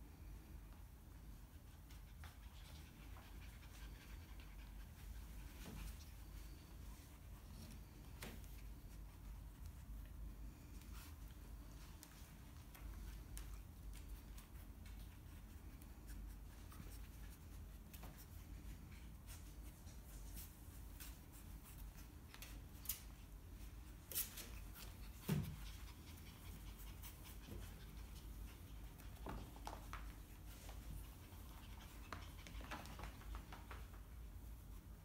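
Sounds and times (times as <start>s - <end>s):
puppies scratching and rustling: 1.2s - 35.0s.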